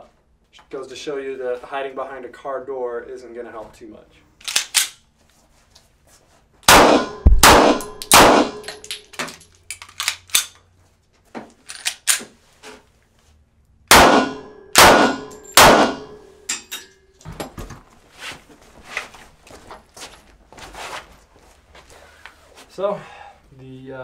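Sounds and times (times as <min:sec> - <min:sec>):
handgun shots: 0:06.7 - 0:09.0, 0:13.9 - 0:16.2
light metallic clinks and knocks: 0:16.5 - 0:17.5.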